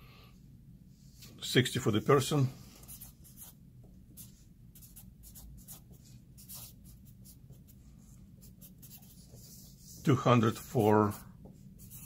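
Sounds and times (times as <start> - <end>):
marker writing on paper: 2.8 - 3.6, 4.2 - 12.0.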